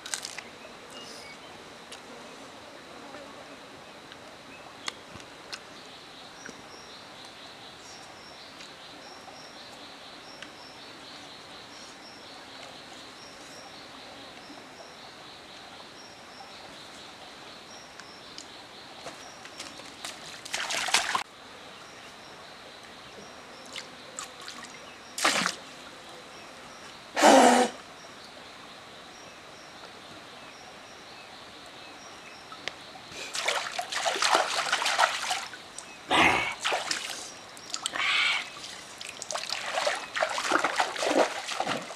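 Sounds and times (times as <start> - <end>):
faint insect chirping: 0.2 - 41.9
water splashing: 19.7 - 21.2, 23.7 - 25.7, 33.2 - 35.6, 36.3 - 41.9.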